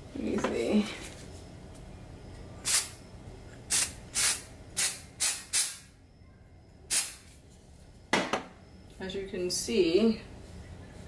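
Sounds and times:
aerosol spray hissing bursts: 0:02.6 - 0:03.0, 0:03.7 - 0:05.8, 0:06.9 - 0:07.2.

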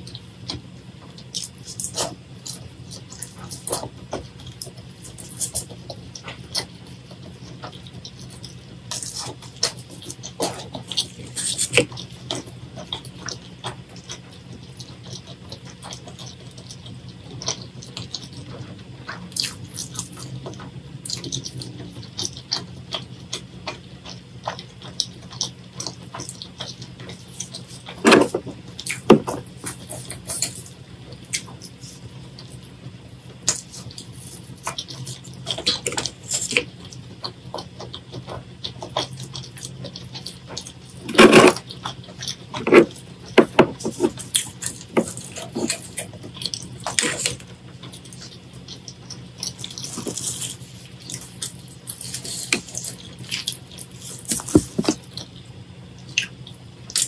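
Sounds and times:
steady low hum: 0:00.0 - 0:57.0
wet chewing sounds: 0:00.0 - 0:57.0.

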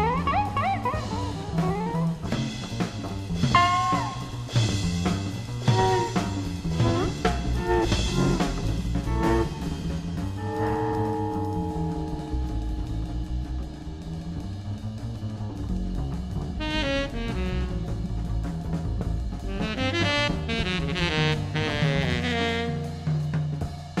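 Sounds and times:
drum kit: 0:00.0 - 0:24.0
upright bass: 0:00.0 - 0:24.0
tenor saxophone: 0:03.5 - 0:04.8, 0:05.6 - 0:13.2, 0:16.6 - 0:18.5, 0:19.4 - 0:23.7.

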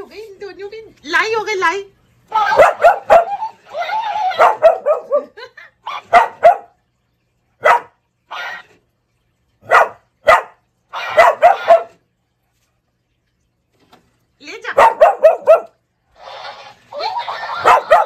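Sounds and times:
dog barking: 0:02.5 - 0:03.5, 0:04.2 - 0:06.8, 0:07.6 - 0:08.6, 0:09.6 - 0:12.0, 0:14.7 - 0:15.8, 0:17.5 - 0:18.0.

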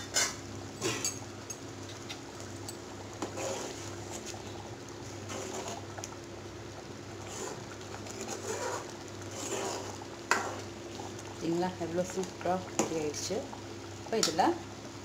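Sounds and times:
thick gravy bubbling in a pot: 0:00.0 - 0:15.0
spoon stirring gravy: 0:07.3 - 0:11.1.

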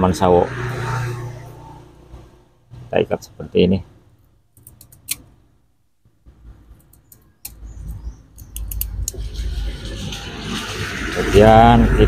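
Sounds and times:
vehicle approaching rumble: 0:07.5 - 0:12.0.

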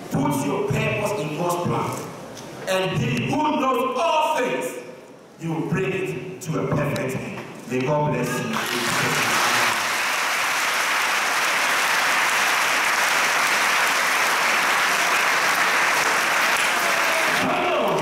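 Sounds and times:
audience applauding: 0:08.5 - 0:18.0.

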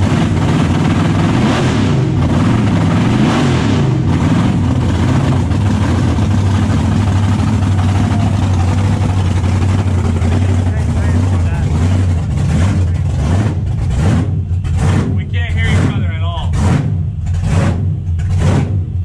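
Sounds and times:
supercharged engine idling loudly: 0:00.0 - 0:19.0.

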